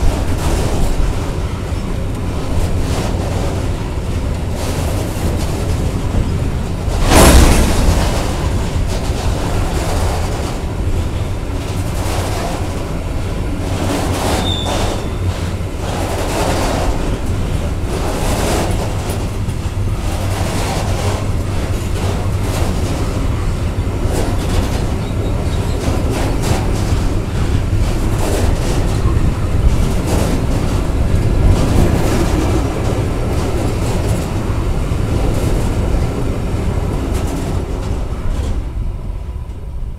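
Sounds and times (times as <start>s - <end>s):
wheels clacking over rail joints: 0.0s - 39.6s
freight train rumbling past: 0.0s - 39.9s
wheel squeal: 14.3s - 15.3s.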